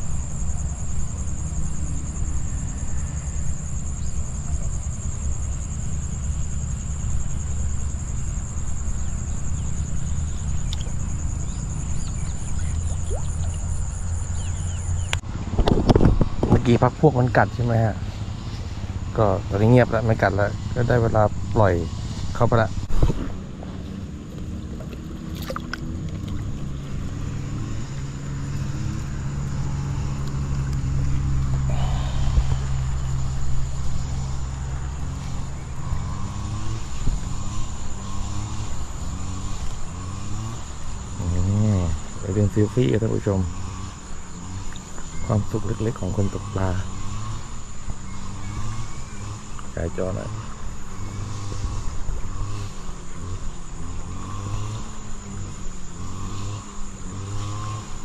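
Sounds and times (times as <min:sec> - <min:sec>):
insect trill: 0:00.0 - 0:58.0
low engine drone: 0:00.0 - 0:58.0
steady low rumble: 0:07.0 - 0:36.3.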